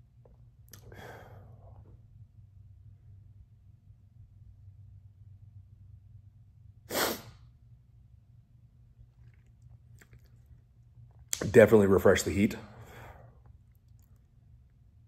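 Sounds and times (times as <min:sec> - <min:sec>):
sharp burst of breath through nose: 0:06.9 - 0:07.4.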